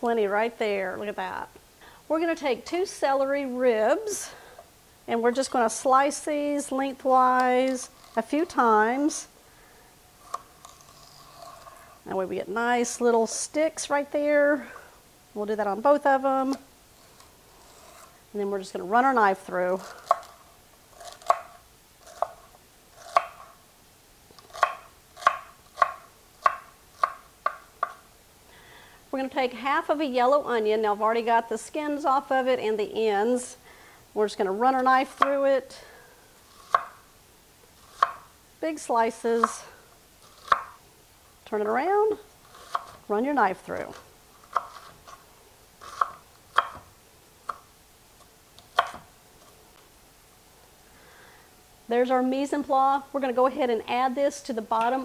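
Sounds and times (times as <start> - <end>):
knife chopping on wooden board: 24.5 - 28.0, 36.7 - 37.0, 40.4 - 40.8, 45.8 - 46.8, 48.8 - 49.0.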